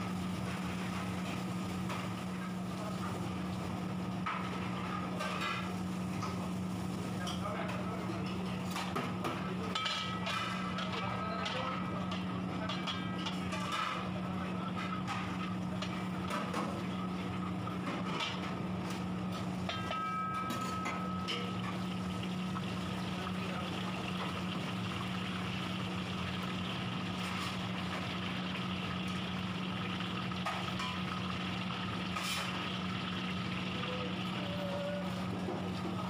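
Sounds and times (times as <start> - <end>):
spices sizzling in hot oil: 0.0 - 36.0
metal ladle scraping a pan: 32.1 - 32.7.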